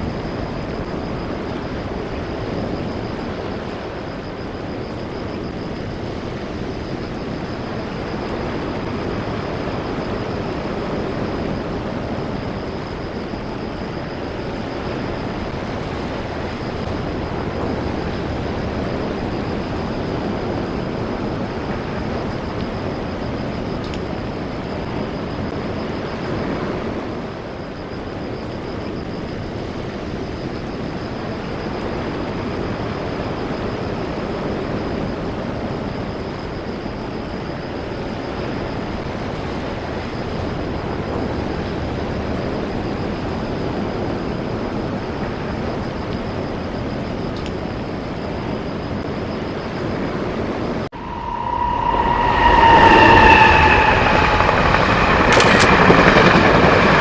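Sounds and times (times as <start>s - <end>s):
thin high whine: 0.0s - 57.0s
wind: 0.0s - 57.0s
surf rushing: 51.0s - 57.0s.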